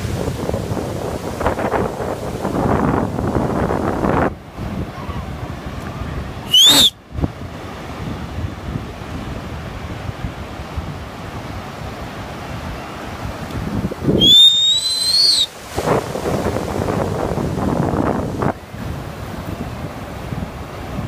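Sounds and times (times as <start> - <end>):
ocean surf breaking: 0.0 - 21.0
wind buffeting microphone: 0.0 - 21.0
shrill whistle-like tone: 6.5 - 7.0, 14.2 - 15.5.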